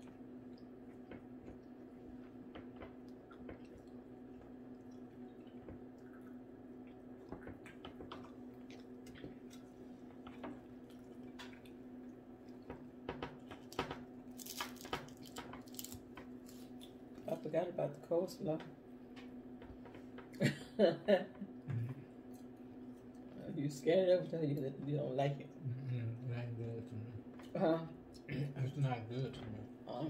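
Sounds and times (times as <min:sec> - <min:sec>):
steady low hum: 0:00.0 - 0:30.0
wet chewing: 0:02.5 - 0:12.7
fingers pulling apart fried food: 0:13.6 - 0:17.0.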